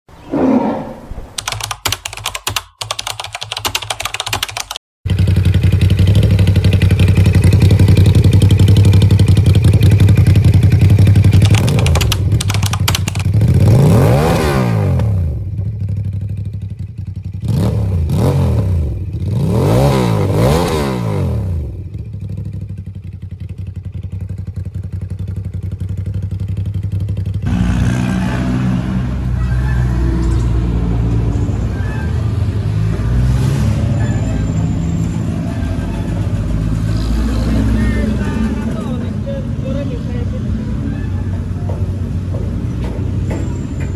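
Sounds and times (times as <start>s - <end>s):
motorcycle engine idling and revving: 2.8s - 43.9s
irregular clicking and clatter: 11.3s - 13.4s.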